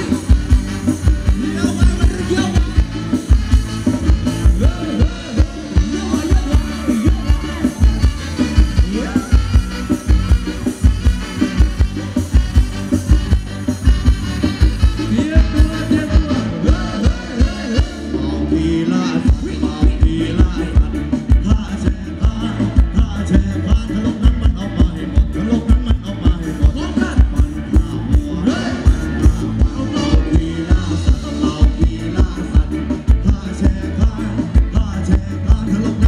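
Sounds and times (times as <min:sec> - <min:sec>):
driving drum beat: 0:00.0 - 0:18.3, 0:19.0 - 0:36.0
live band playing dance music: 0:00.0 - 0:36.0
person singing: 0:00.0 - 0:36.0.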